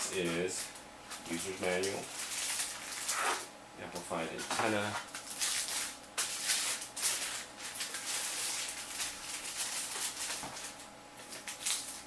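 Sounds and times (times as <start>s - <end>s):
plastic wrap crinkling: 0.0s - 3.5s, 4.4s - 12.0s.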